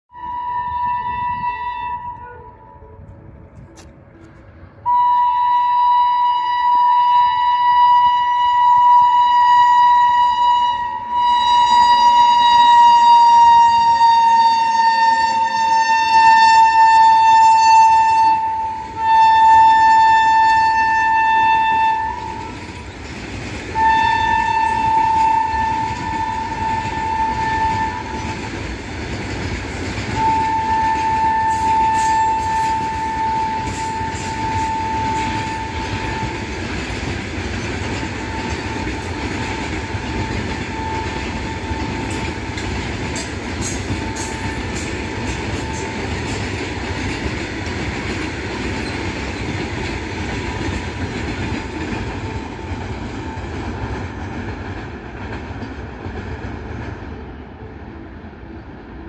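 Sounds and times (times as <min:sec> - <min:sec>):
locomotive horn blasts: 0:00.1 - 0:03.8, 0:04.8 - 0:22.8, 0:23.8 - 0:28.4, 0:30.1 - 0:36.7, 0:37.9 - 0:42.6, 0:43.2 - 0:46.5
freight wagons clattering on rails: 0:21.8 - 0:57.2.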